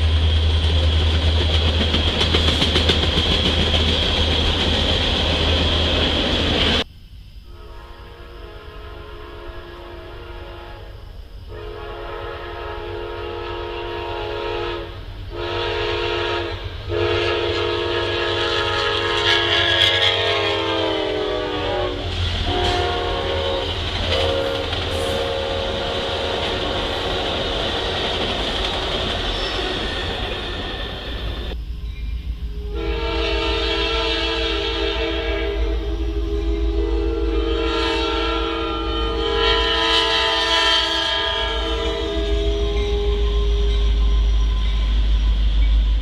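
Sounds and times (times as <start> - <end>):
train cars rumbling past: 0.0 - 6.9, 7.5 - 46.0
train horn blasts: 7.4 - 27.2, 32.5 - 44.9.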